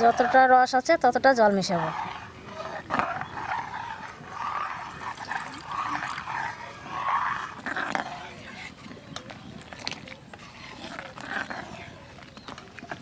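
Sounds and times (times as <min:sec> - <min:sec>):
water pouring into steel bowl: 0:04.9 - 0:06.2.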